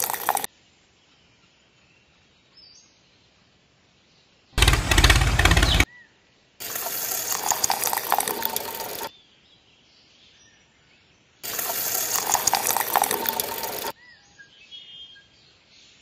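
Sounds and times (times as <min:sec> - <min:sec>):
wet cement pouring and splashing: 0:00.0 - 0:00.5, 0:06.6 - 0:09.1, 0:11.4 - 0:13.9.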